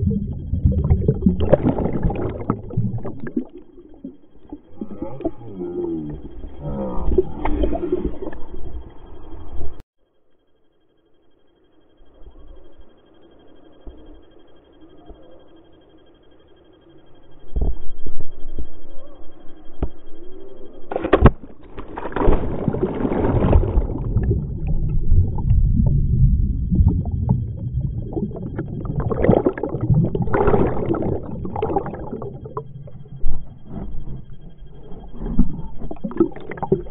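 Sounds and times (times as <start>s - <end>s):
body plunging into water: 0.0s - 5.5s, 20.9s - 34.4s, 35.2s - 36.9s.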